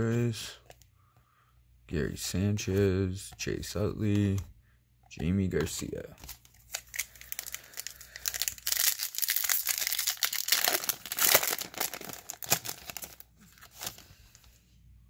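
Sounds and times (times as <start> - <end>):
foil wrapper crinkling: 6.2 - 14.2.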